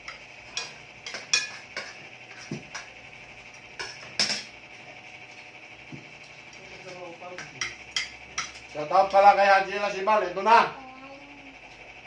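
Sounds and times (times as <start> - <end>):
metal utensils clinking on dishes: 0.5 - 2.6, 6.8 - 9.2.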